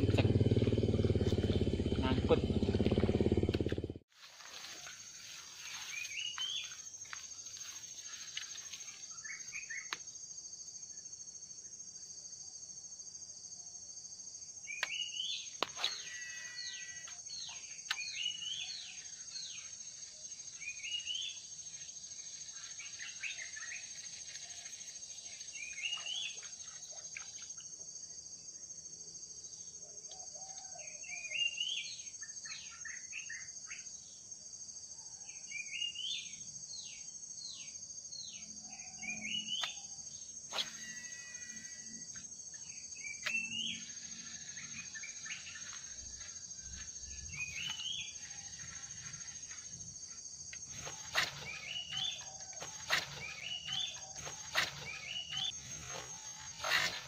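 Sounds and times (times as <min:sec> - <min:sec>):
high-pitched insect drone: 0:15.4 - 0:27.7, 0:36.4 - 0:57.0
sharp click: 0:17.9 - 0:18.1, 0:43.2 - 0:43.4
birds chirping: 0:42.5 - 0:57.0.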